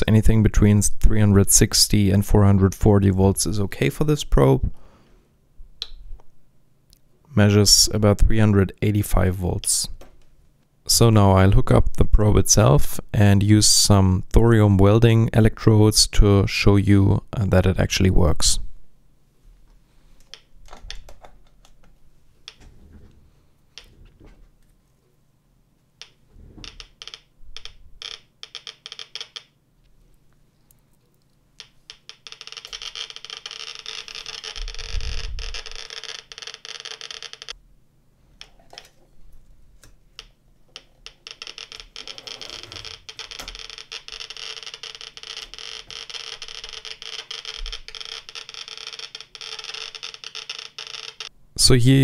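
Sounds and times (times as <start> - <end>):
geiger counter clicking: 26.0 - 29.6, 31.2 - 37.6, 39.8 - 51.4.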